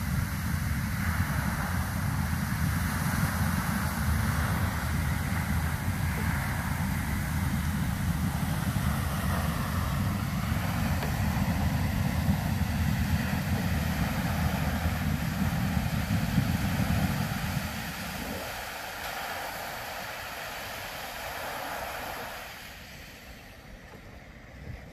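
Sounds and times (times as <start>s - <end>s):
low rumble: 0.0s - 18.8s
geyser water spouting: 0.0s - 24.9s.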